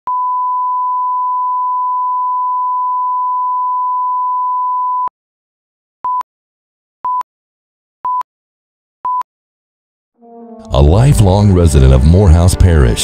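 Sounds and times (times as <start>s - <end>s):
short countdown beep: 8.0s - 8.3s, 9.0s - 9.3s.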